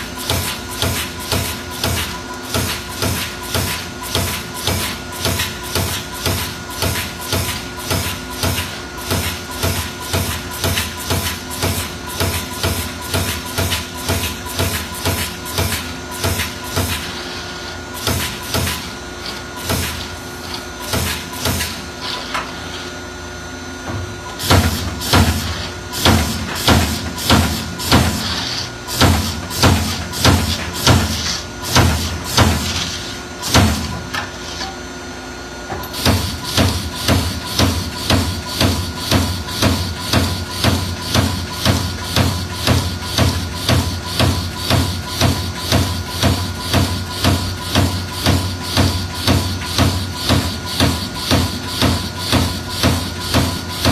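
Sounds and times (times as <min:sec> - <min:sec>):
punch press striking sheet metal: 0:24.4 - 0:34.2, 0:35.9 - 0:53.9.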